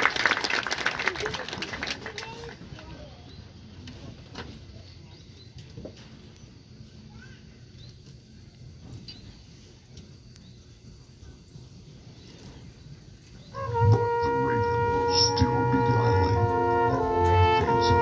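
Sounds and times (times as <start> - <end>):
faint open-air murmur: 0.0 - 18.0
brass band chord: 13.5 - 18.0.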